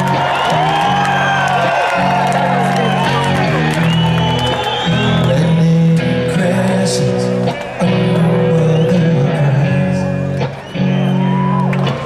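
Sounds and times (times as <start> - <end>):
rock band playing live: 0.0 - 12.0.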